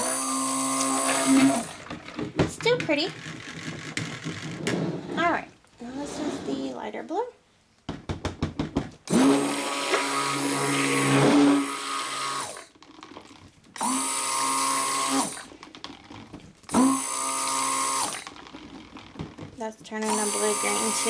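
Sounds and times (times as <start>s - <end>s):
stick blender motor whine: 0.0s - 2.0s, 9.1s - 12.8s, 13.8s - 19.1s, 20.0s - 21.0s.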